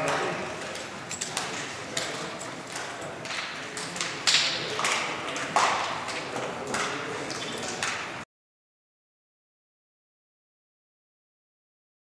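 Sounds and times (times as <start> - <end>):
indistinct voices: 0.0 - 8.0.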